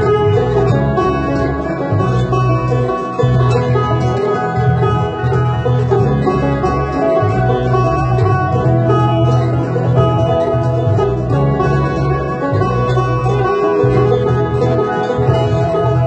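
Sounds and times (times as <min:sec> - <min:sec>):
banjo picking country-folk tune: 0:00.0 - 0:16.0
sustained low notes: 0:00.0 - 0:16.0.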